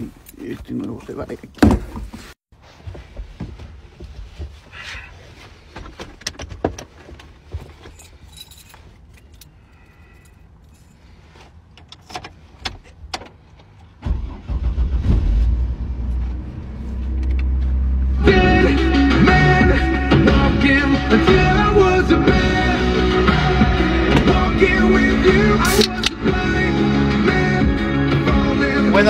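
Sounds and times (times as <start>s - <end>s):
keys jangling: 7.8s - 11.0s
car engine starting and running: 11.8s - 29.0s.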